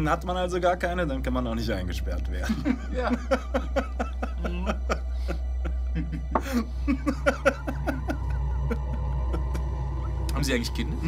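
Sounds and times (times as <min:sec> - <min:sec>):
steady low hum: 0:00.0 - 0:11.0
man laughing: 0:02.4 - 0:09.9.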